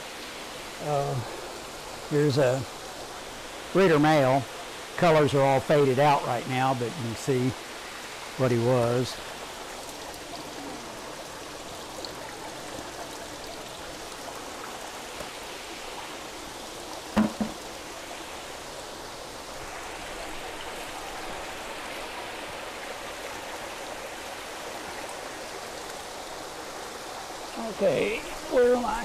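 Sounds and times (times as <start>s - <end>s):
water splashing and trickling: 0.0s - 29.0s
double knock: 17.2s - 17.6s.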